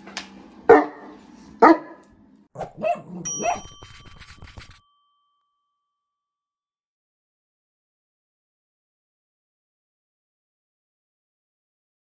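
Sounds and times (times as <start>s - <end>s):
dog barking: 0.7s - 2.0s, 2.6s - 3.8s
bright ringing chime: 3.2s - 6.4s.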